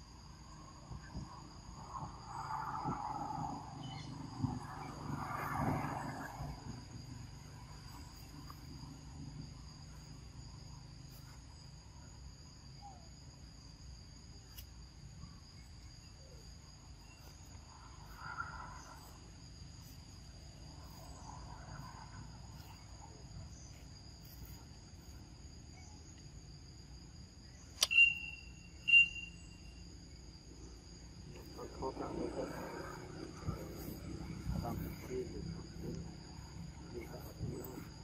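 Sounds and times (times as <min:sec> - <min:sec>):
insect chorus drone: 0:00.0 - 0:38.0
sharp high-pitched calls: 0:27.8 - 0:29.7.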